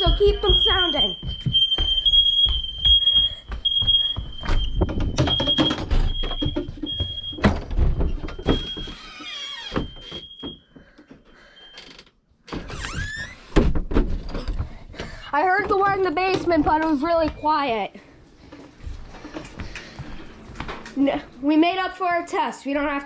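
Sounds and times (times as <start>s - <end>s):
footsteps and thuds on stairs: 0.0s - 9.0s, 12.5s - 17.6s, 18.8s - 21.2s
smoke alarms beeping: 0.0s - 10.9s
squeak: 8.3s - 10.6s.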